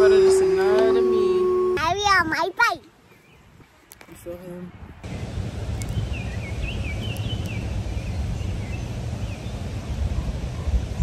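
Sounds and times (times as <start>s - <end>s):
wind buffeting microphone: 3.3s - 11.0s.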